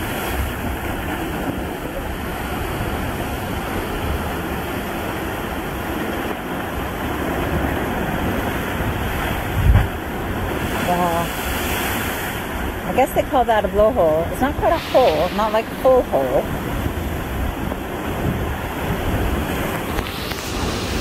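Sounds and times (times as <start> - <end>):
waves breaking on rocks: 0.0 - 21.0.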